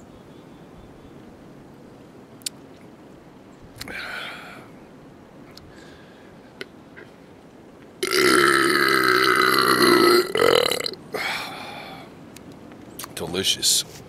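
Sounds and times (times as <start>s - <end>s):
man belching loudly: 8.0s - 11.0s.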